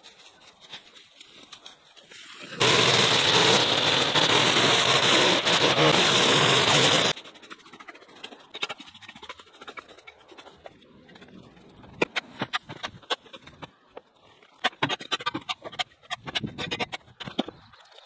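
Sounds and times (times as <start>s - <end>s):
rake scraping through dry leaves: 0.0s - 10.7s.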